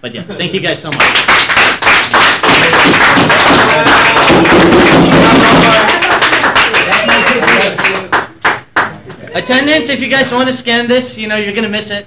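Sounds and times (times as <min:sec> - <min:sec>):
audience applauding: 0:00.9 - 0:09.2.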